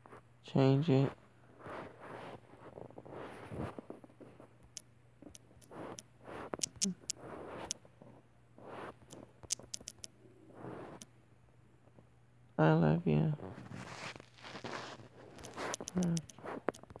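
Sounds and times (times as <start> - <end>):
soft rustling: 0.0 - 9.4, 13.4 - 17.0
fingertips tapping phone screen: 2.1 - 7.9, 8.6 - 11.1, 14.0 - 17.0.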